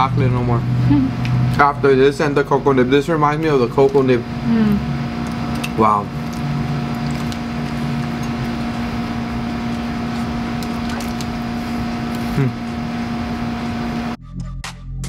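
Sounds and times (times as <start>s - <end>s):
steady mechanical hum: 0.0s - 14.2s
person humming mm: 4.5s - 4.9s, 12.2s - 12.7s.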